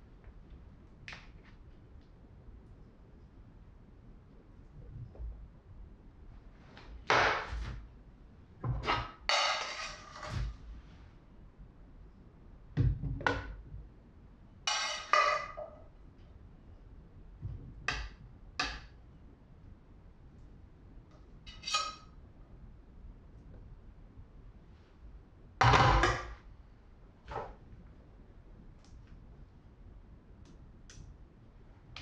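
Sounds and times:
spatula scraping metal pan: 9.3 - 10.5, 14.7 - 15.7, 21.5 - 22.0.

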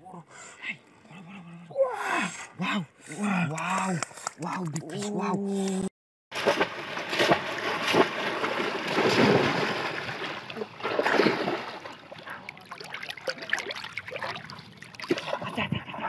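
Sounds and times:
splashing in muddy water: 6.3 - 15.7.

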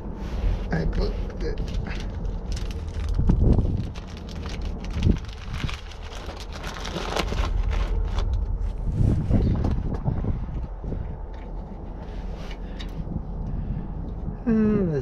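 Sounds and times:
steady low rumble: 0.0 - 15.0
plastic bag crinkling: 1.6 - 8.6.

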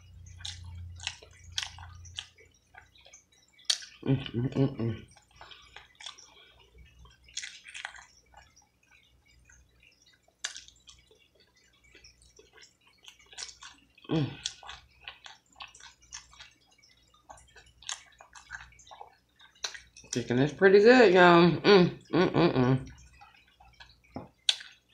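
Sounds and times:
wet chewing and lip-smacking: 0.0 - 20.3, 22.8 - 24.9
person murmuring: 14.1 - 14.4, 21.5 - 22.9.

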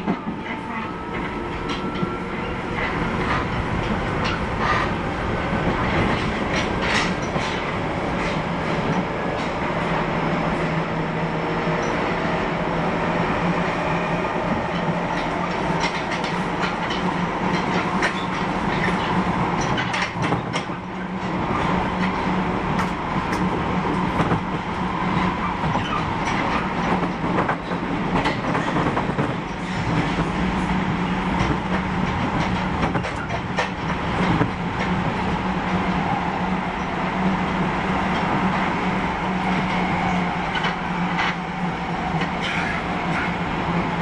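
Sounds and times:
subway train drive hum: 0.0 - 44.0
wheels clicking over rail joints: 5.6 - 9.6, 14.7 - 30.6, 31.3 - 35.9, 42.1 - 43.4.

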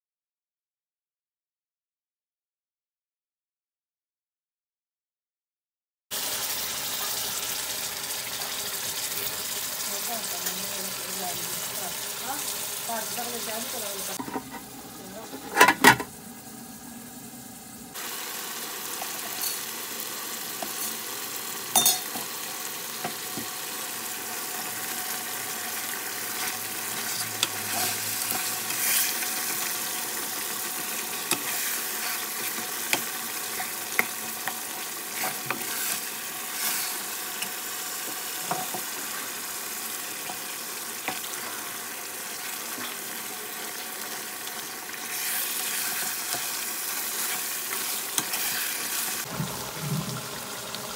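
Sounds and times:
vegetables sizzling in a pot: 6.1 - 50.9
metal spoon scraping a pot: 26.3 - 29.5, 31.2 - 37.0, 47.1 - 49.0.

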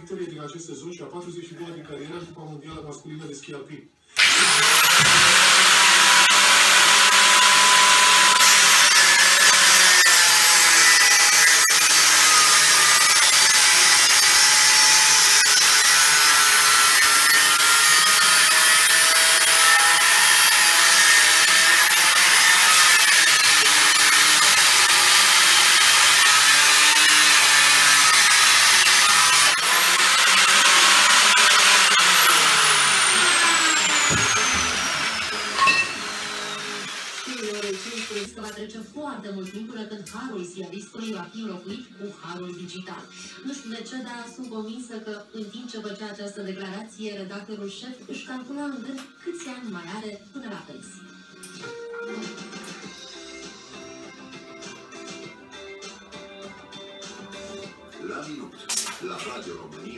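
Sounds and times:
cut-off saw grinding steel: 4.2 - 38.3
saw motor winding down: 4.2 - 38.3.

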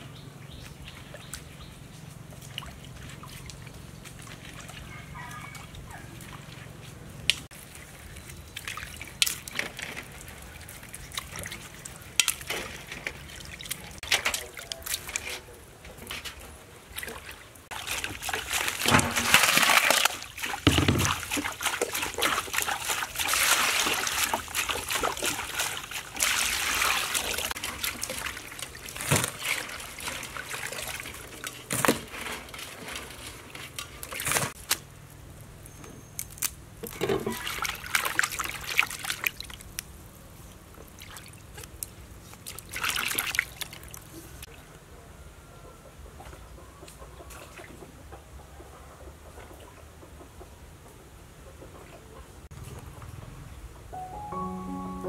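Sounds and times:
water sloshing and splashing: 0.6 - 34.8, 36.8 - 44.6
sharp knocks: 20.7 - 21.2.

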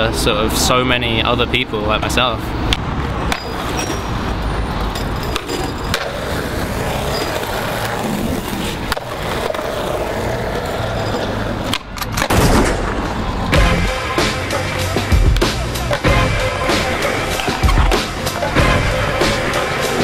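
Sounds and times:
skateboard wheels rolling on concrete: 0.0 - 20.0
skateboard clacks popping and landing: 5.1 - 10.2, 11.1 - 13.2.

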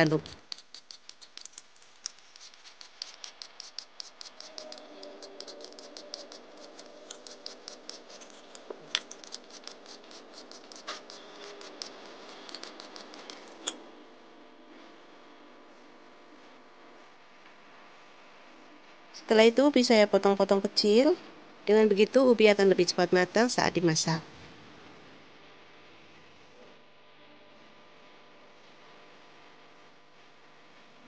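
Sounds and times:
peeler scraping potato skin: 0.0 - 13.8.

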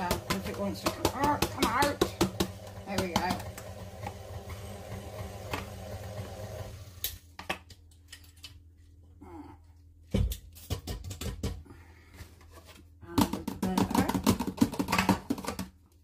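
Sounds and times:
plastic tub knocking on steel bowl: 0.0 - 3.5, 13.2 - 15.6.

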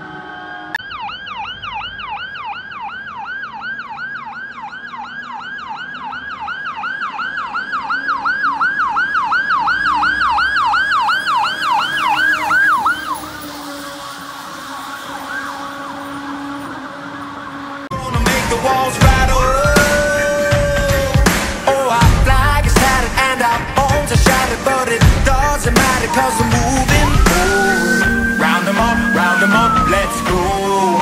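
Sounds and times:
faint siren: 0.0 - 31.0
fire truck yelp siren: 0.0 - 31.0.

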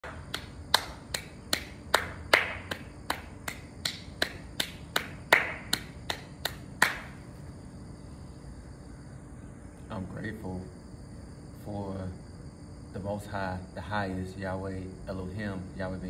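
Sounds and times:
sharp snaps or clicks: 0.0 - 7.1.

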